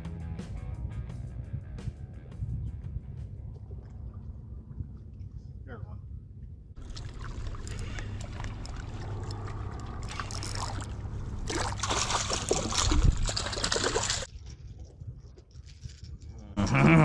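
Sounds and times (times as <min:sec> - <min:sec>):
low hum: 0:00.9 - 0:17.0
water splashing and sloshing: 0:03.4 - 0:05.6, 0:06.8 - 0:15.6.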